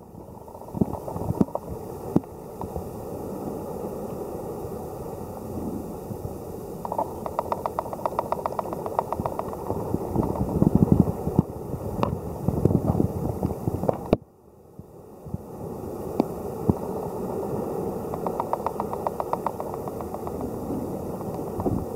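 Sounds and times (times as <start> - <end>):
rapid clicks: 6.9 - 10.5, 18.1 - 20.6.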